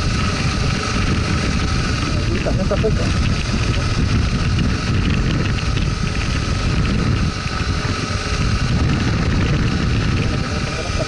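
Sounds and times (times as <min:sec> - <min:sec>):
motorcycle engine running: 0:00.0 - 0:11.0
wind rumble on microphone: 0:00.0 - 0:11.0.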